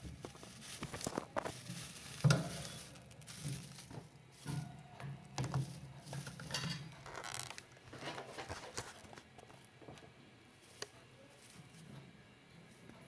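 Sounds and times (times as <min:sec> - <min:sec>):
faint scratchy rustling: 0:00.0 - 0:09.8.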